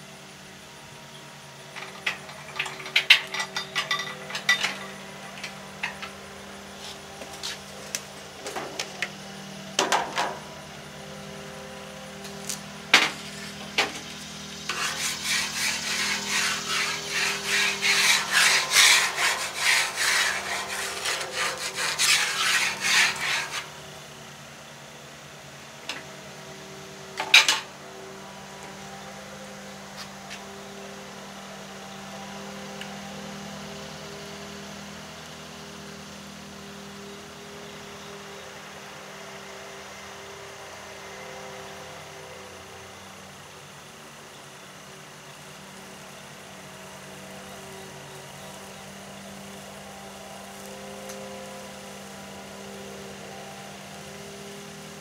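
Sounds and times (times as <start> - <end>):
spatula scraping quickly: 14.6 - 23.7.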